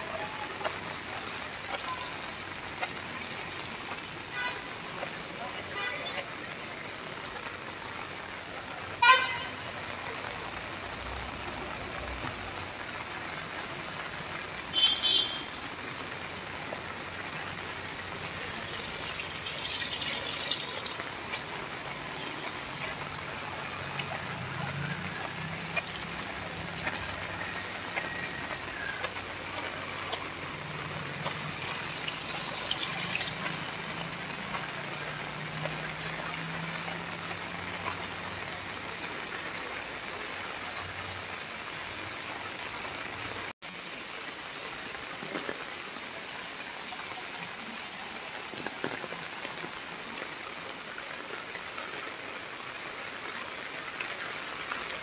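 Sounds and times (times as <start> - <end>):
heavy rain on pavement: 0.0 - 55.0.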